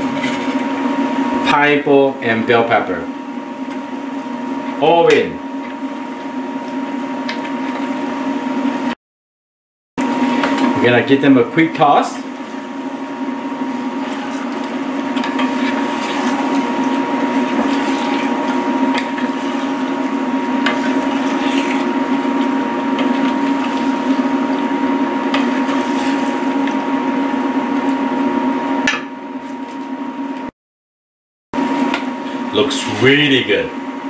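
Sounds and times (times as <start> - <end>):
steady hum: 0.0 - 9.0, 10.0 - 30.5, 31.6 - 34.0
wet stirring in curry: 12.3 - 26.8.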